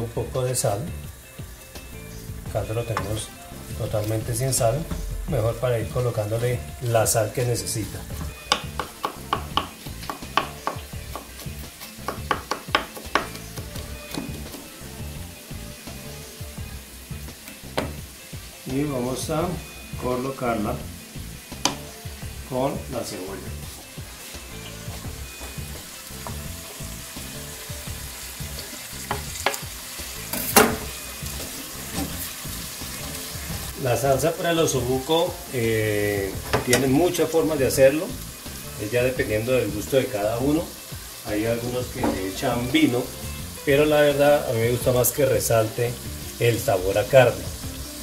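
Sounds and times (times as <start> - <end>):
background music: 0.0 - 48.0
onions sizzling in a pot: 0.0 - 48.0
knife chopping on wooden board: 8.2 - 11.4, 12.0 - 13.4
wooden knocks against pot: 36.4 - 36.9.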